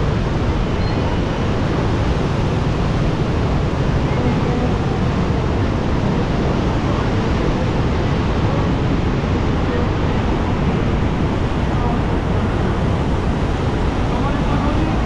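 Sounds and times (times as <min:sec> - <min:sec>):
floodwater rushing and churning: 0:00.0 - 0:15.0.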